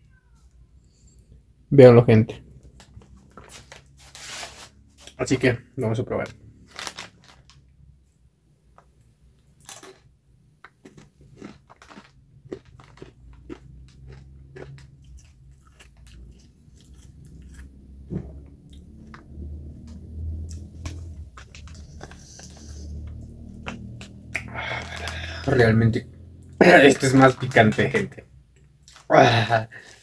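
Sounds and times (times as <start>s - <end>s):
person crunching chips: 6.6s - 7.6s, 9.6s - 17.7s, 23.7s - 25.6s.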